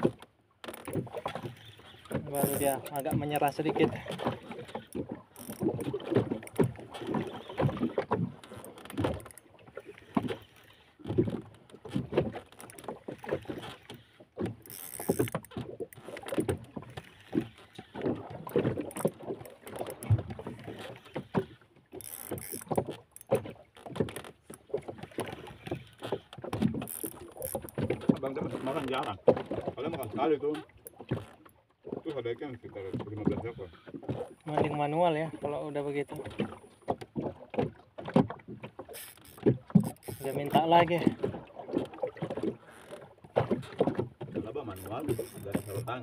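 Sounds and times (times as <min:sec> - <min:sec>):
water slapping boat hull: 0:00.0 - 0:46.0
fishing reel cranking: 0:00.6 - 0:07.6, 0:12.5 - 0:24.4, 0:25.3 - 0:27.8, 0:38.9 - 0:40.7, 0:44.7 - 0:46.0.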